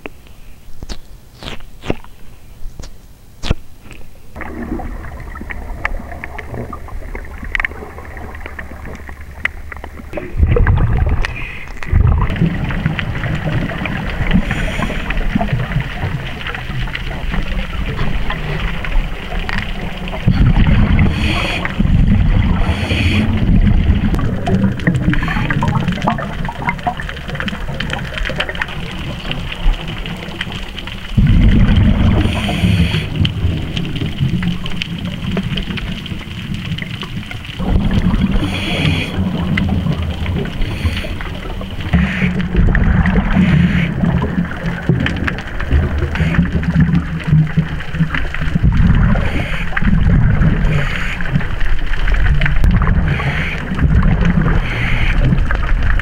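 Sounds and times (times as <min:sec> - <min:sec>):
exhaled bubbles rumbling underwater: 0:04.4 - 0:56.0
regulator inhalation hiss: 0:14.4 - 0:15.2, 0:21.0 - 0:21.8, 0:22.5 - 0:23.4, 0:32.2 - 0:33.2, 0:38.4 - 0:39.2, 0:40.6 - 0:41.3.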